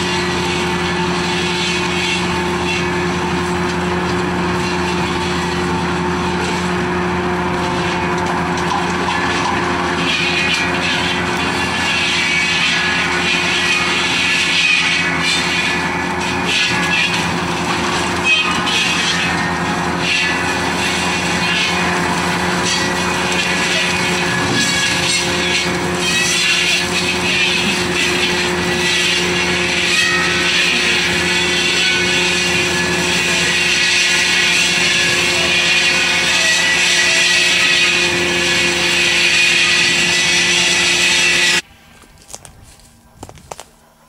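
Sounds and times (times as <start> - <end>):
cutting machine running: 0.0 - 44.0.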